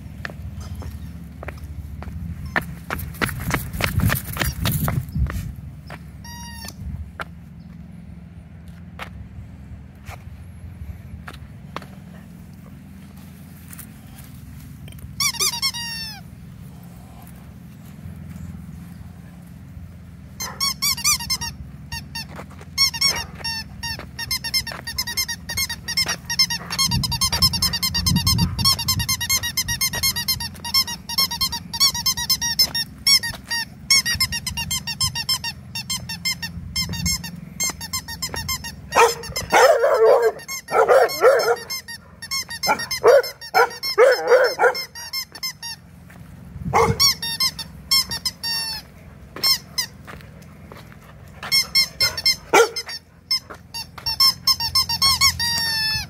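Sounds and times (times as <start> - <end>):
squeaky dog toy squeaking: 6.2 - 6.8, 15.2 - 16.3, 20.4 - 45.9, 46.8 - 50.0, 51.4 - 56.0
dog barking: 38.9 - 44.9, 46.7 - 47.2, 52.0 - 52.9.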